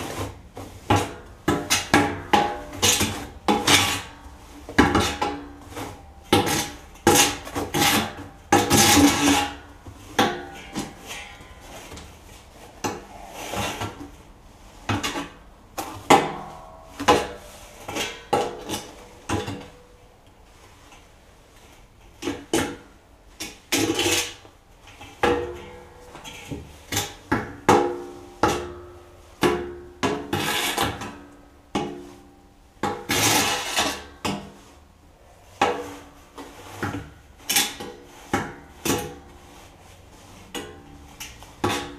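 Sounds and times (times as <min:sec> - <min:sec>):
hand tool clanking inside steel barrel: 0:04.8 - 0:12.2.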